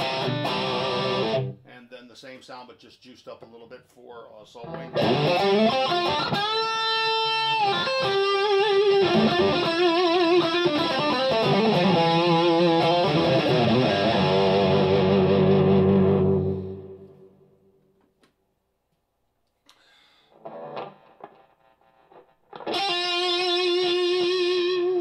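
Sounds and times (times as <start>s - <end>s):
overdriven electric guitar: 0.0s - 1.6s, 4.6s - 17.4s, 20.3s - 25.0s.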